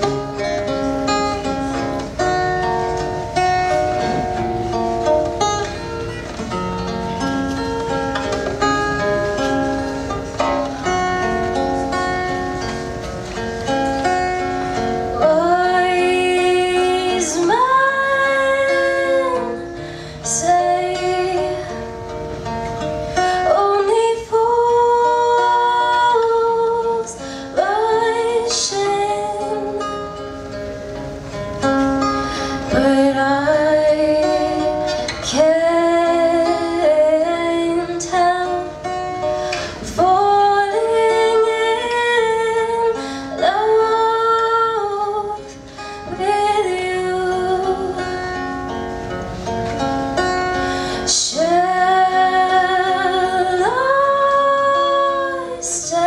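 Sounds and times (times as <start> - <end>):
acoustic guitar: 0.0 - 56.0
woman singing: 14.0 - 22.1, 23.2 - 30.2, 32.6 - 48.7, 51.0 - 56.0.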